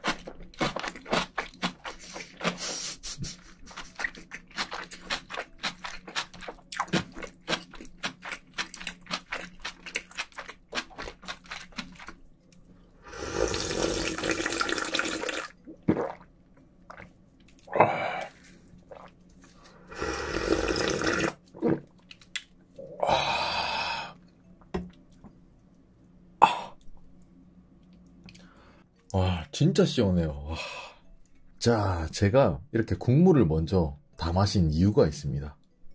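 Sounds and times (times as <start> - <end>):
wet chewing: 0.0 - 12.2
slurping broth: 13.0 - 16.2, 19.8 - 21.9.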